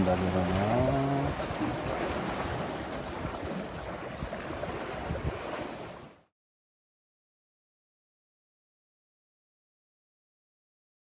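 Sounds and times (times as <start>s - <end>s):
sea waves splashing on concrete blocks: 0.0s - 6.2s.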